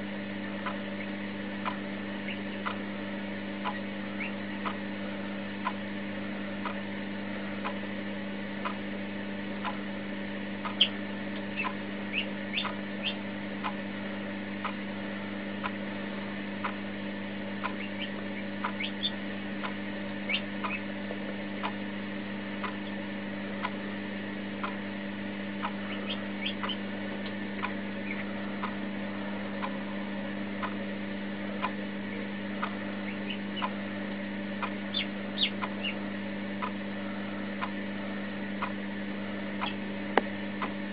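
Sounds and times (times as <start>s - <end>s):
steady low hum: 0.0s - 40.9s
chick peeping: 0.6s - 2.8s, 3.6s - 4.8s, 10.6s - 13.8s, 17.6s - 20.9s, 25.6s - 26.9s, 27.6s - 28.8s, 31.6s - 33.8s, 34.6s - 37.7s, 39.6s - 39.8s
regular ticking: 10.6s - 13.8s, 17.6s - 21.8s, 22.4s - 23.0s, 25.6s - 30.8s, 31.6s - 36.9s.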